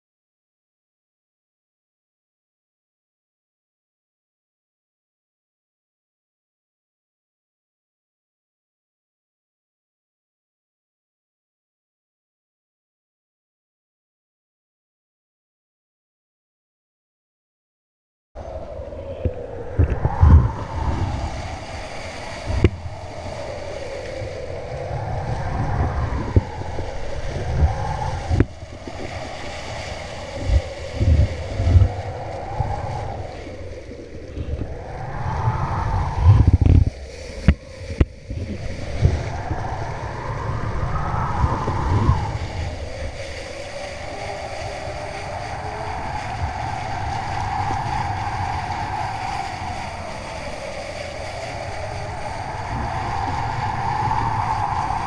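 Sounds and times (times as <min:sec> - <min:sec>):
wavering hum: 0:18.4 - 0:46.6
water rushing and splashing: 0:18.4 - 0:55.0
wind buffeting microphone: 0:18.4 - 0:55.0.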